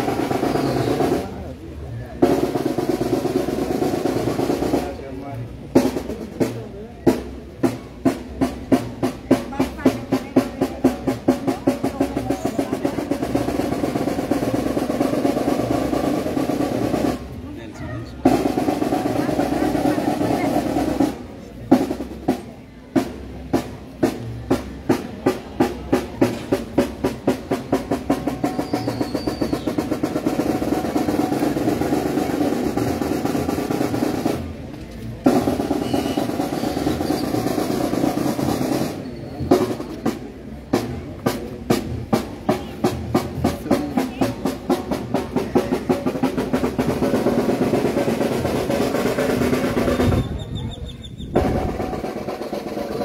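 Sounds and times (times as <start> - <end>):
snare drum rolls: 0.0 - 17.4, 18.2 - 50.5, 51.3 - 53.0
horns and saxophones chords: 35.2 - 40.9.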